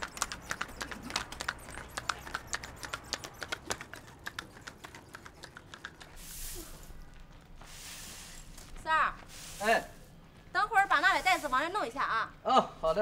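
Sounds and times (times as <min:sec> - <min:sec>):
hooves clip-clopping on pavement: 0:00.0 - 0:06.2, 0:07.0 - 0:07.8
broom sweeping concrete: 0:06.2 - 0:07.0, 0:07.6 - 0:12.2.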